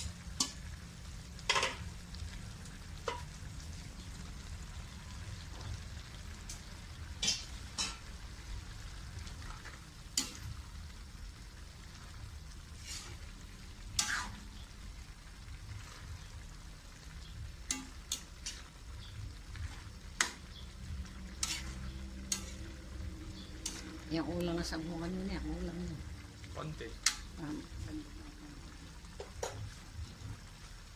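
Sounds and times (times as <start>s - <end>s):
vegetables sizzling: 0.0s - 30.9s
metal ladle scraping wok: 1.4s - 1.9s, 7.1s - 8.2s, 9.4s - 10.6s, 12.7s - 14.7s, 17.6s - 24.2s.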